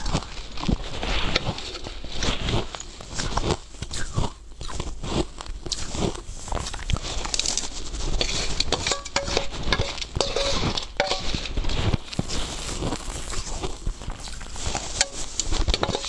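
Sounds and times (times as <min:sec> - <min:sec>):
ice being chewed: 0:00.0 - 0:16.0
metal spoon clinking on steel bowl: 0:08.6 - 0:11.4, 0:14.9 - 0:16.0.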